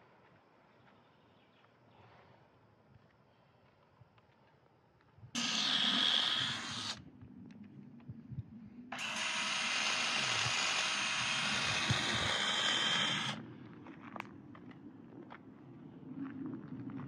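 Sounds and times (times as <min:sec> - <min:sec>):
cordless drill whirring: 0:05.4 - 0:07.0, 0:08.9 - 0:13.4.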